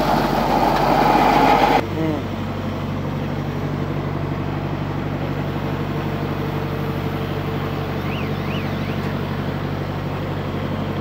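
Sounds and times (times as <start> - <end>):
engine idling: 0.0 - 11.0
faint high chirps: 8.0 - 9.2.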